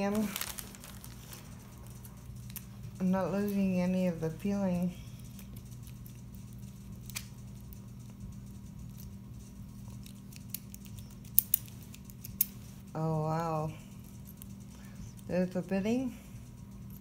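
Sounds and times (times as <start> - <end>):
lock pick ticking and scraping: 5.2 - 12.6.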